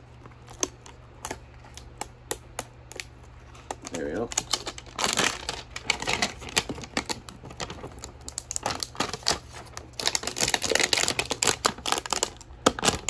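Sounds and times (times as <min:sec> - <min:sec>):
plastic shrink wrap crinkling: 0:02.9 - 0:13.0.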